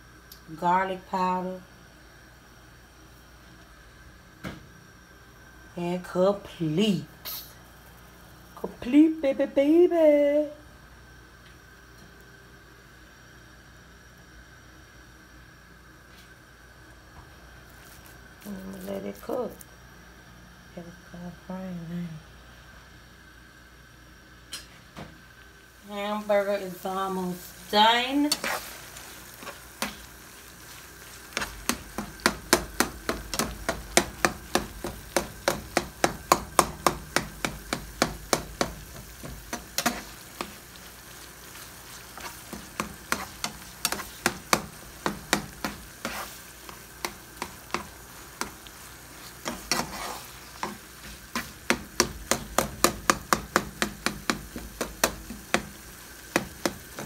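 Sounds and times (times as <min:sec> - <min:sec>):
meat sizzling in a skillet: 0:25.2 - 0:57.0
fork tapping against pan: 0:31.4 - 0:40.5, 0:42.5 - 0:45.8, 0:50.6 - 0:55.7.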